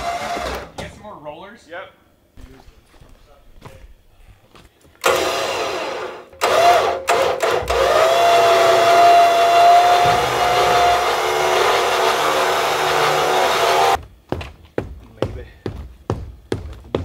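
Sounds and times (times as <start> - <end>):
electric winch motor whining: 5.0 - 14.0.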